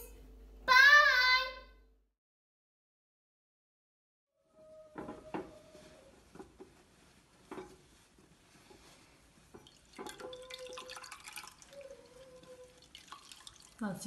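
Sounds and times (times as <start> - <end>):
wet cloth squelching: 7.9 - 14.0
liquid trickling into a jug: 9.5 - 14.0.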